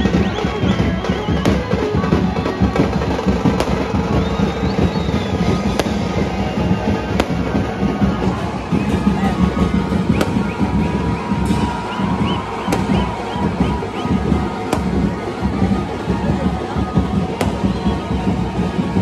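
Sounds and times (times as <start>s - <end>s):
crowd din: 0.0s - 19.0s
firecracker bangs: 0.0s - 19.0s
loud music: 0.0s - 19.0s
thin wavering whistles: 4.1s - 6.9s, 10.0s - 14.3s.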